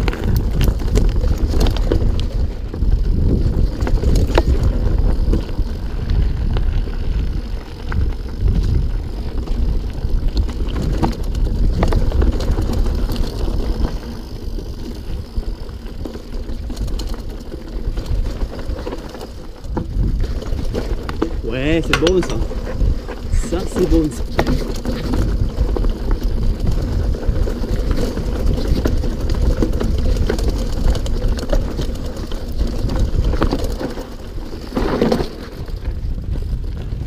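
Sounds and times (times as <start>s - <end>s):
bicycle tyres on loose stones: 0.0s - 37.0s
bike frame and chain clattering: 0.0s - 37.0s
wind rumble on microphone: 0.0s - 37.0s.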